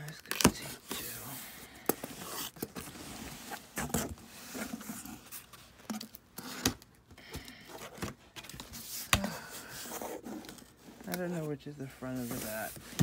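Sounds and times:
cardboard flaps scraping and rustling: 12.0s - 13.0s.

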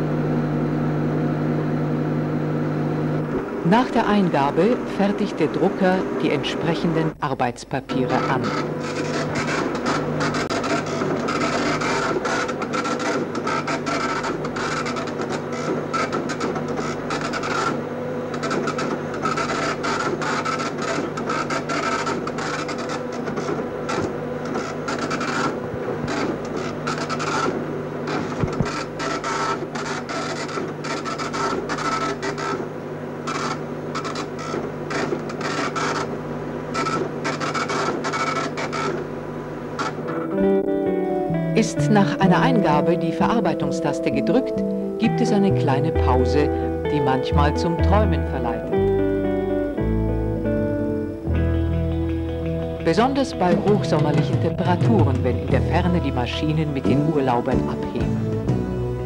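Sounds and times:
steady low hum: 0.0s - 59.0s
impact printer chattering: 8.1s - 39.0s.

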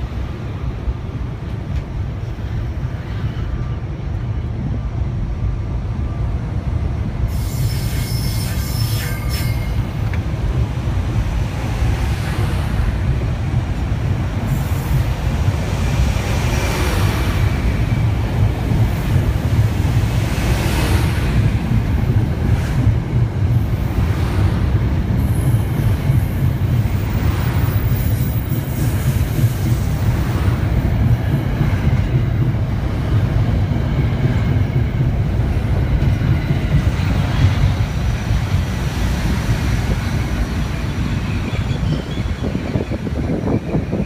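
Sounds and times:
train wheels rumbling on rail: 0.0s - 44.0s
high wheel squeal: 7.3s - 10.0s, 40.6s - 43.8s.

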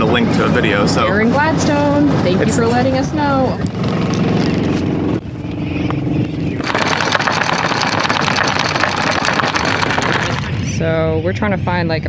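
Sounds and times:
boat engine idling: 5.5s - 10.7s.

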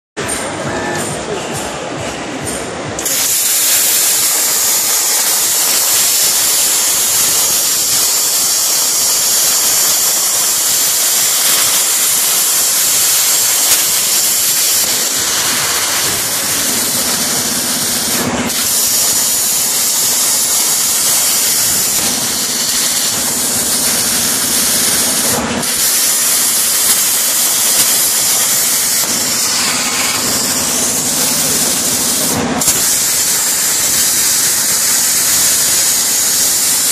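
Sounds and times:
plasma cutter hissing: 3.0s - 36.9s.

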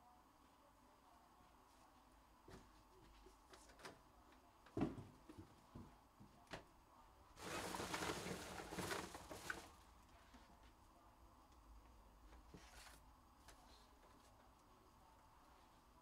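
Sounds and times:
rustling: 7.4s - 10.7s.

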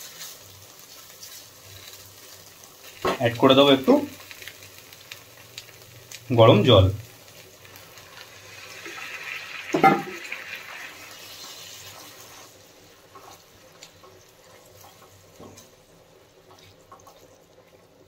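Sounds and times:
faint sizzle: 0.0s - 18.0s
water pouring into hot pan: 2.7s - 12.8s
soft stirring clicks: 16.4s - 17.8s.

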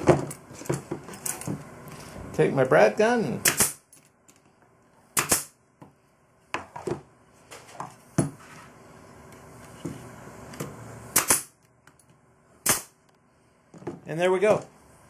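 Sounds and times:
nail gun firing: 3.4s - 3.8s, 5.2s - 5.6s, 11.1s - 11.6s, 12.6s - 13.0s.

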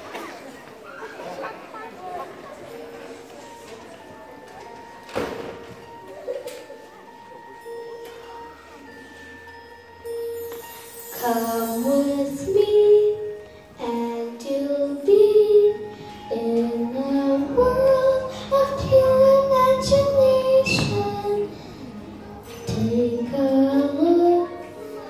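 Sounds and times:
boy singing into microphone: 11.1s - 25.0s.

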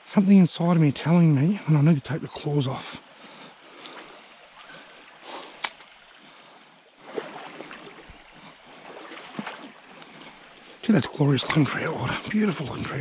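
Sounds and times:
creek trickling over stones: 0.3s - 13.0s
sharp click: 5.6s - 5.9s.

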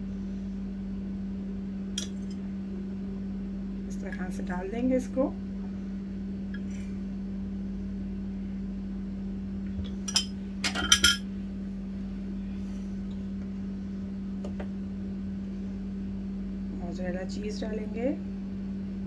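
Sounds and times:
steady low hum: 0.0s - 19.0s
ceramic bowls clinking: 10.0s - 11.2s.

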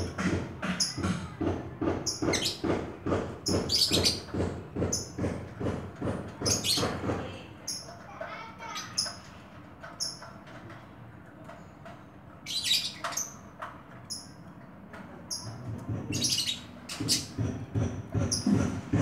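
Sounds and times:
bird chirping: 3.4s - 5.2s.

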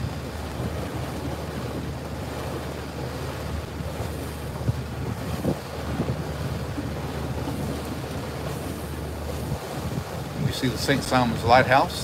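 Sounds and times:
boat engine drone: 0.0s - 12.0s
wind buffeting microphone: 0.0s - 12.0s.

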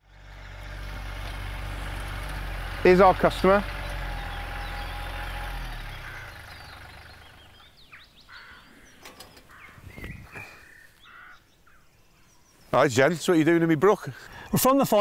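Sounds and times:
tractor diesel engine running: 0.0s - 9.7s
birds chirping and whistling: 3.7s - 12.7s.

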